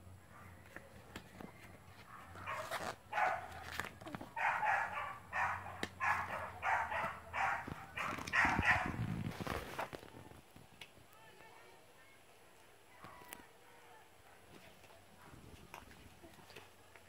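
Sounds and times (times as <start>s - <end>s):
dog barking: 2.1s - 3.6s, 4.4s - 9.0s.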